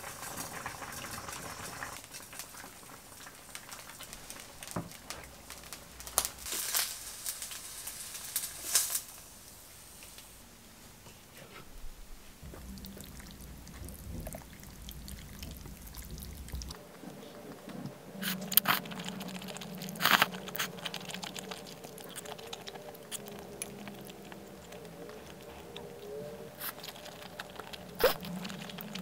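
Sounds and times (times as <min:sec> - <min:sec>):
noodles slurped: 0:12.5 - 0:16.8, 0:18.2 - 0:29.0.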